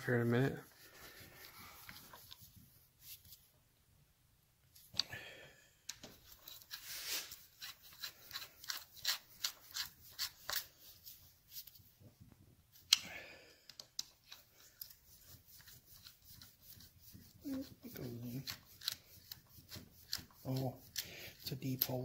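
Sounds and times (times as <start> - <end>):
screwdriver clicks and scrapes: 5.9 - 10.7, 13.7 - 16.8, 18.4 - 22.0.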